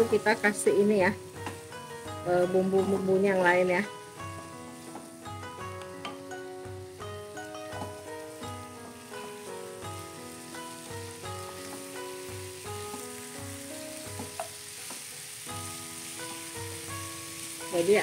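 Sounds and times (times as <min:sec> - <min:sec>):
food sizzling in a wok: 0:00.0 - 0:18.0
background music with a beat: 0:01.1 - 0:17.3
wooden spatula knocks: 0:14.1 - 0:15.1.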